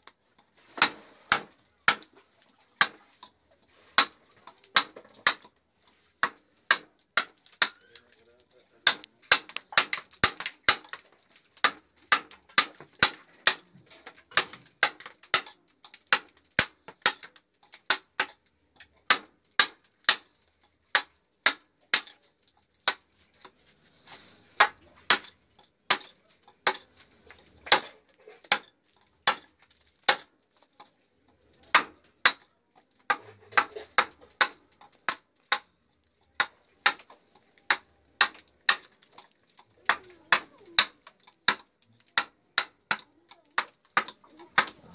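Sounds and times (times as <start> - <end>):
hammer striking chisel into wood: 0.8 - 2.1, 4.0 - 5.5, 8.8 - 11.0, 11.6 - 13.6, 14.3 - 17.3, 20.9 - 22.1, 24.6 - 25.3, 28.5 - 29.5, 30.1 - 30.3, 31.7 - 32.4.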